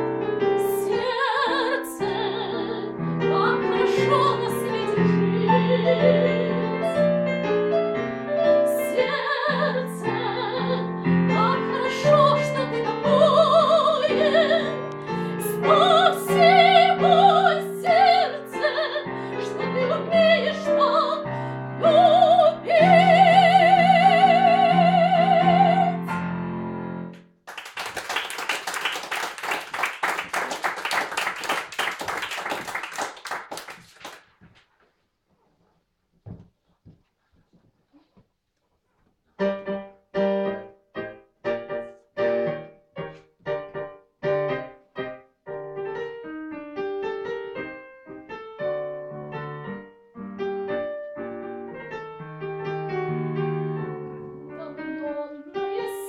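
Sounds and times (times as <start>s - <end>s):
piano accompaniment: 0.0s - 33.5s, 39.4s - 56.0s
woman singing operatically: 0.6s - 6.9s, 8.7s - 26.1s, 54.5s - 56.0s
audience applause: 27.5s - 34.3s.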